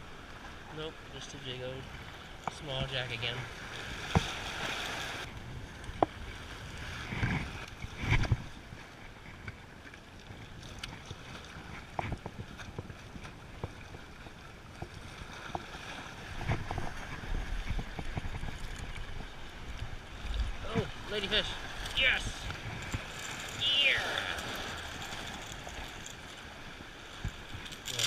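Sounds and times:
wind buffeting microphone: 11.4s - 23.7s
waves washing against rocks: 15.1s - 28.0s.

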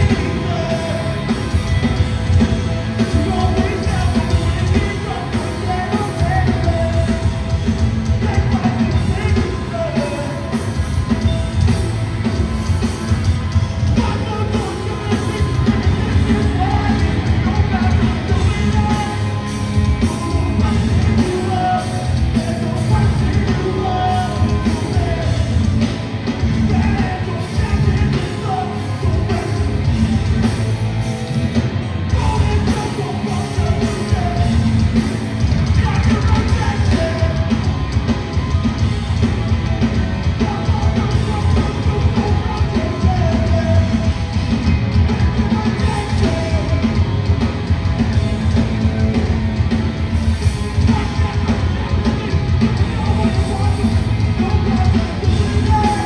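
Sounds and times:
hardcore band playing live: 0.0s - 56.0s
person singing: 50.7s - 56.0s.

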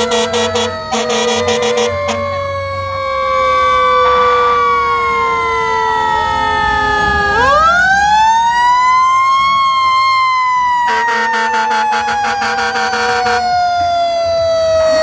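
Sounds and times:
harsh buzzy horn: 0.0s - 2.3s, 10.9s - 13.4s
fire engine sirens wailing: 0.0s - 15.0s.

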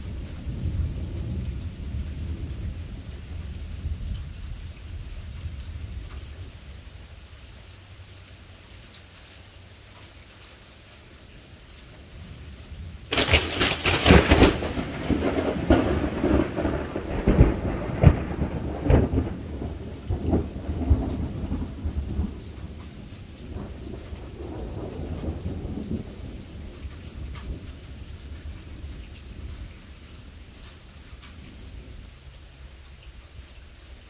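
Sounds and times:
thunder crack and rumbling: 0.0s - 6.2s, 12.8s - 29.8s
steady rainfall: 0.0s - 34.0s.

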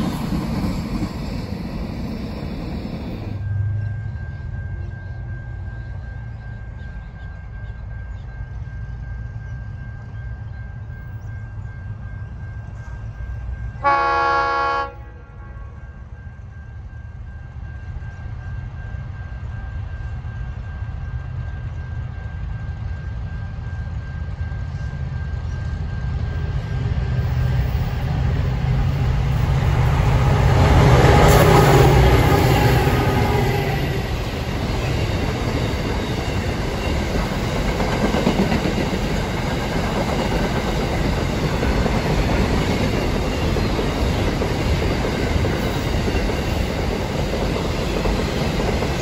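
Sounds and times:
diesel train engine rumble: 0.0s - 49.0s
locomotive horn blast: 13.8s - 15.8s.

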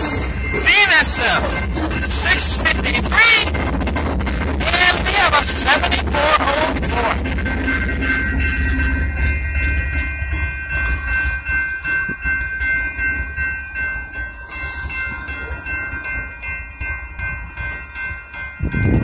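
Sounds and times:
freight train rumbling: 0.0s - 19.0s
railroad crossing bell ringing: 0.0s - 19.0s.

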